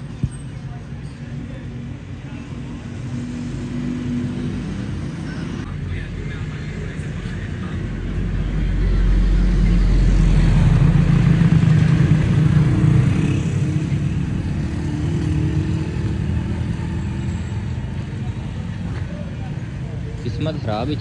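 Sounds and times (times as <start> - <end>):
vehicle engine passing by: 7.2 - 19.0.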